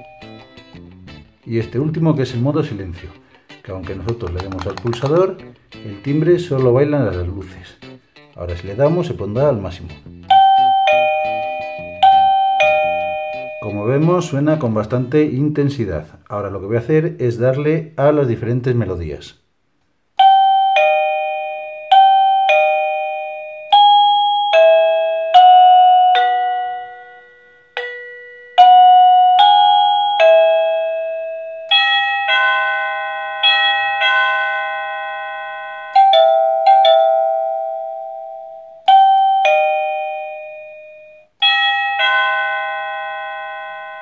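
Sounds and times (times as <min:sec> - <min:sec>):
electronic doorbell chime melodies: 0:00.0 - 0:01.0, 0:10.3 - 0:14.4, 0:20.2 - 0:44.0.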